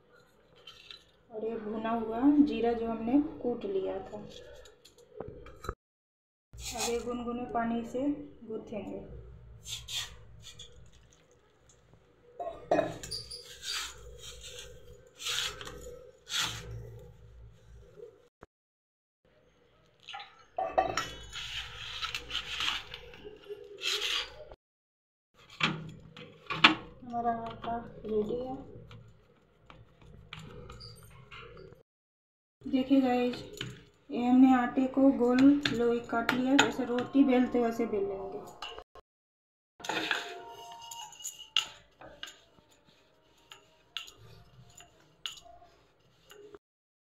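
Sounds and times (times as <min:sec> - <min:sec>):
fingers scraping flour in steel bowl: 0:09.6 - 0:11.0, 0:13.0 - 0:17.1, 0:21.2 - 0:24.6, 0:40.0 - 0:46.6.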